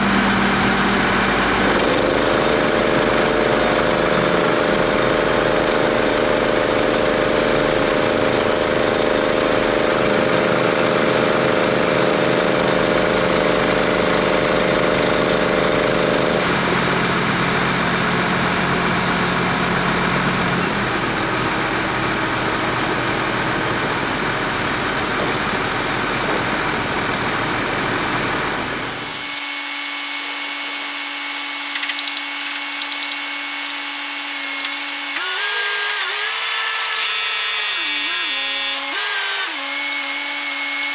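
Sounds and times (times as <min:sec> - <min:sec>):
diesel engine running under load: 0:00.0 - 0:29.2.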